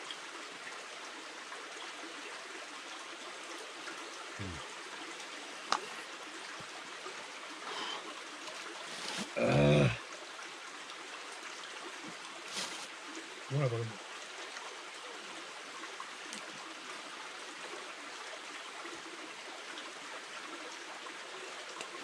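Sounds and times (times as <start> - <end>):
forest stream rushing: 0.0 - 22.0
man's short vocal sound: 4.4 - 4.6, 9.4 - 10.0, 13.5 - 13.9.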